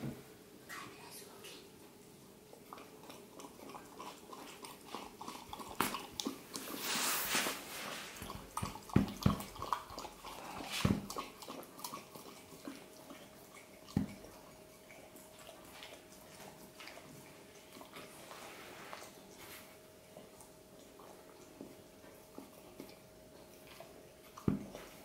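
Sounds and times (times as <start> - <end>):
dog lapping from a glass: 2.6 - 6.7, 8.2 - 18.1.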